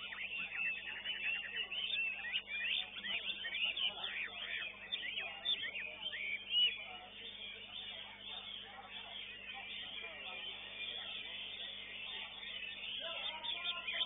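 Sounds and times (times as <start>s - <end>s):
songbirds singing: 0.0s - 14.0s.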